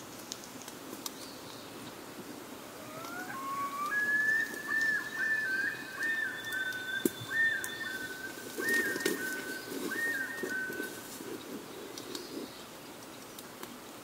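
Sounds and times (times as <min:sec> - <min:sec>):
loon calling: 0:02.6 - 0:11.3.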